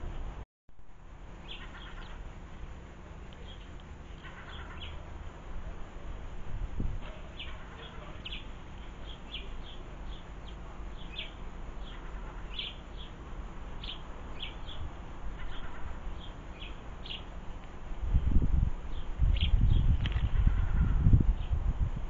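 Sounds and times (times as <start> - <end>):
steady low rumble: 0.0 - 22.0
sparrows chirping: 1.4 - 2.3, 3.2 - 5.2, 7.0 - 17.4, 18.9 - 21.6.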